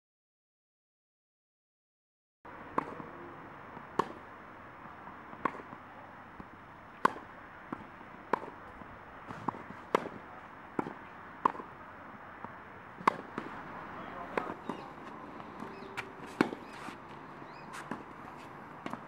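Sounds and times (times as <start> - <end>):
racket hitting tennis balls: 2.7 - 11.8, 12.4 - 19.0.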